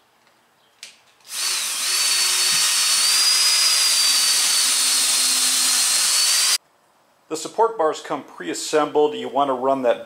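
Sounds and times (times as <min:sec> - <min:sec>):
power drill boring into wood: 0:01.3 - 0:06.6.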